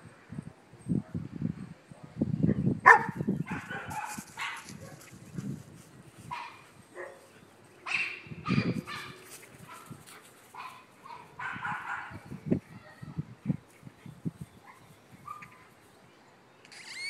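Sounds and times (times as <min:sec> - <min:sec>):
wind buffeting microphone: 0:00.0 - 0:15.6
puppy barking: 0:02.8 - 0:05.0, 0:07.8 - 0:10.0, 0:10.6 - 0:12.2.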